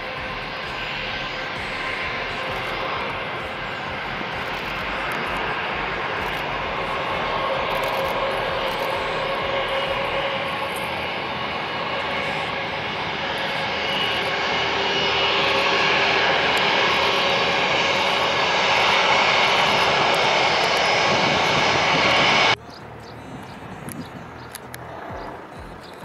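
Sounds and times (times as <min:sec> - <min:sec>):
jet engine rush with whine: 0:00.0 - 0:22.6.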